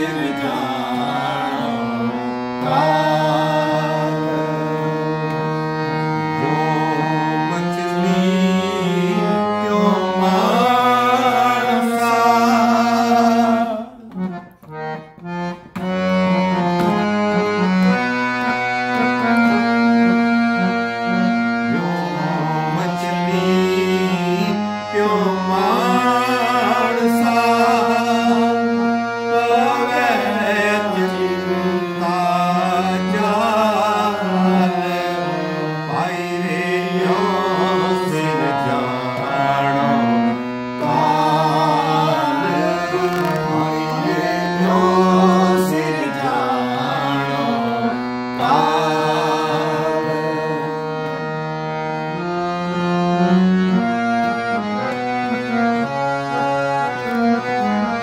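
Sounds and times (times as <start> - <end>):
man singing: 0.0 - 5.2, 6.4 - 14.3, 21.6 - 51.2
harmonium playing chords: 0.0 - 58.0.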